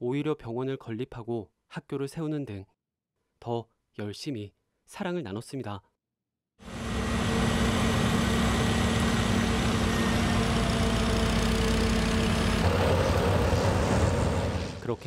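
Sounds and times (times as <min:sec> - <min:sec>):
turboprop engine hum and whine: 0:06.6 - 0:14.9.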